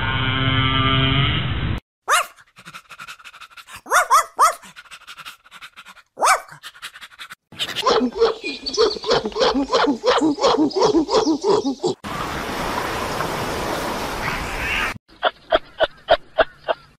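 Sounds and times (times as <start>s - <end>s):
dog yelping: 2.1s - 2.8s, 3.6s - 4.9s, 5.9s - 12.0s
animal calls: 2.1s - 12.0s.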